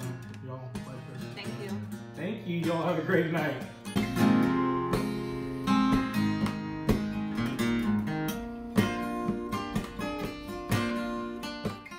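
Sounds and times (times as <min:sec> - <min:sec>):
strummed acoustic guitar: 0:00.0 - 0:11.9.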